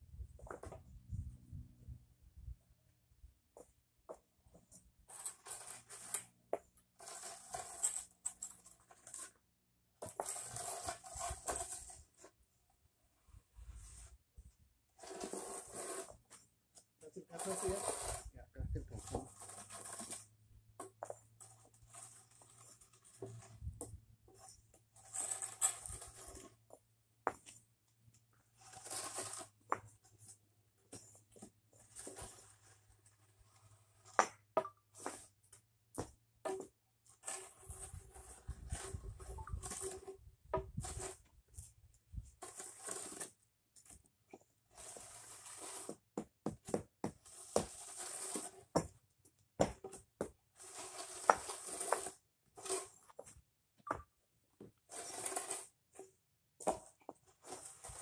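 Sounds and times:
concrete pavers clicking and knocking: 15.0 - 58.0
board scraping across sand: 17.3 - 20.2, 28.6 - 29.6, 47.3 - 48.7.

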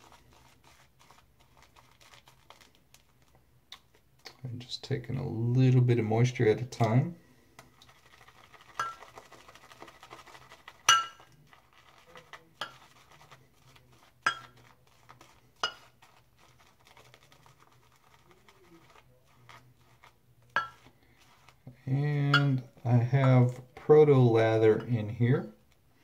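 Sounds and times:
shaving brush scrubbing: 0.0 - 2.8, 7.8 - 21.6
brush clinking against ceramic bowl: 8.8 - 9.0, 10.8 - 11.4, 12.5 - 13.0, 14.2 - 14.7, 15.6 - 16.0, 20.5 - 20.9, 22.2 - 23.4, 24.7 - 25.1.

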